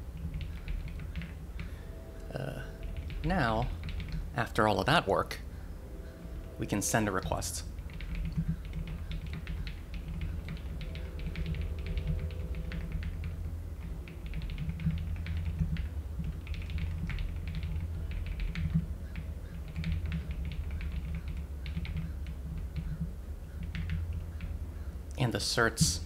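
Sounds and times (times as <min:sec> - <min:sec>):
computer keyboard typing: 0:00.1 - 0:01.7, 0:02.4 - 0:04.3, 0:07.9 - 0:24.5.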